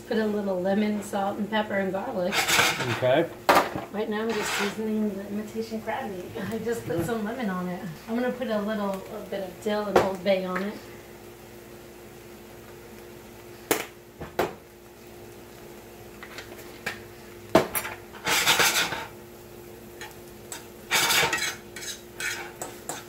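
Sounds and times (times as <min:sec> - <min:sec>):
metal fork scraping frying pan: 0:02.3 - 0:03.1, 0:04.2 - 0:04.8, 0:17.8 - 0:19.1, 0:20.0 - 0:23.0.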